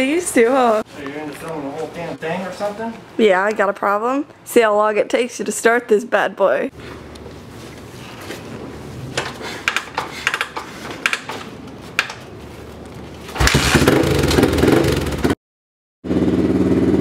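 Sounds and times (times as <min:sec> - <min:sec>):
kickstarter clicks and clanks: 0:09.2 - 0:12.3
dirt bike engine running: 0:13.3 - 0:15.4, 0:16.0 - 0:17.0.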